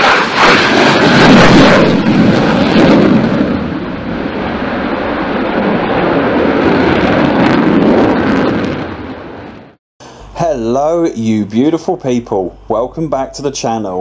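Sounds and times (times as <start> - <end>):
jet engine rushing: 0.0 - 9.8.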